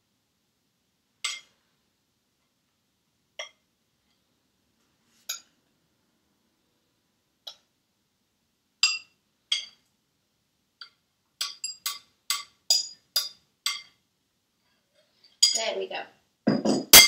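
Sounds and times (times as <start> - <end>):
spoon clinking against glass: 10.8 - 14.0.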